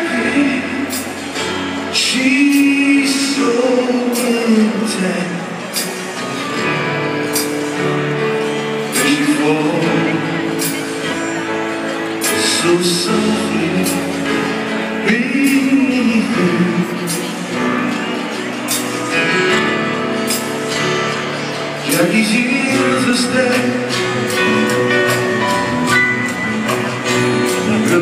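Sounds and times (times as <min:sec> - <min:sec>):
live band with man singing: 0:00.0 - 0:28.0.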